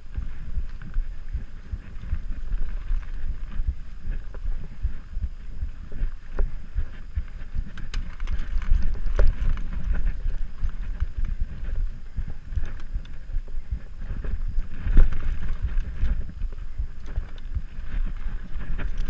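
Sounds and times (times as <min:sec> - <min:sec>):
bike clicks and clatters: 0:00.0 - 0:19.0
bike tyres rumbling over dirt: 0:00.0 - 0:19.0
wind buffeting microphone: 0:00.0 - 0:19.0.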